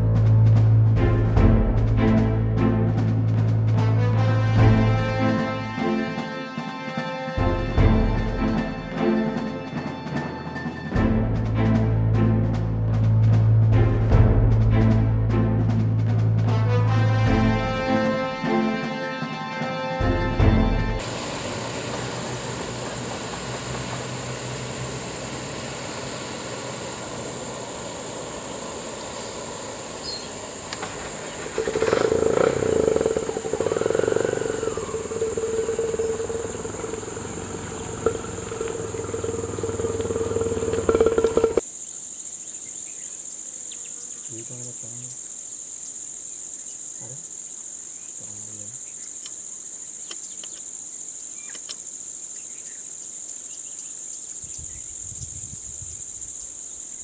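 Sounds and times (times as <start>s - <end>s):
insects buzzing: 0.0s - 57.0s
vehicle noise: 20.5s - 41.7s.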